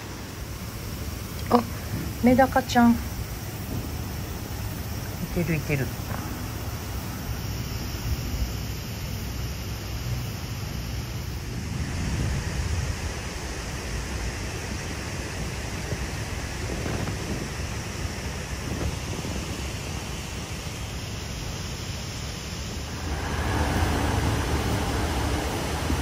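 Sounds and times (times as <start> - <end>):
rushing outdoor background noise: 0.0 - 26.0
low rumble: 22.8 - 26.0.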